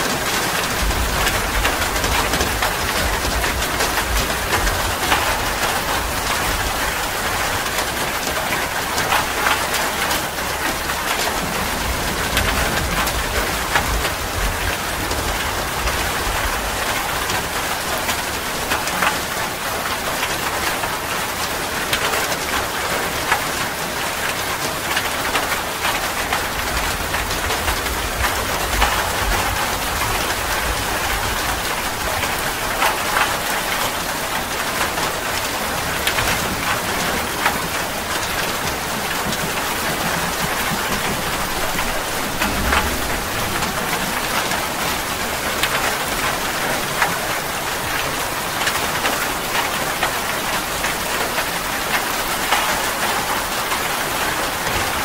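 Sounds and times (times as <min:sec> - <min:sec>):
steady rain falling: 0:00.0 - 0:55.0
close raindrop hits: 0:19.9 - 0:55.0.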